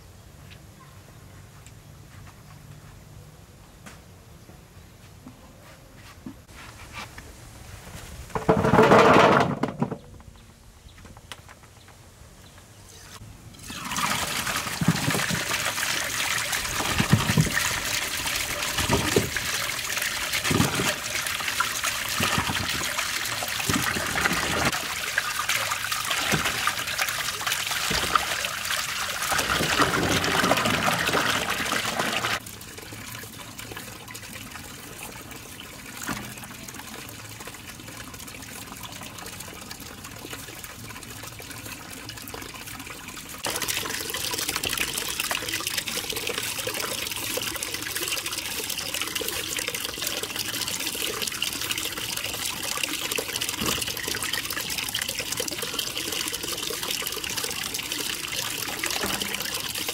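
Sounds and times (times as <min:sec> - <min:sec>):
water trickling: 0:13.5 - 0:59.9
water running and splashing: 0:13.6 - 0:59.9.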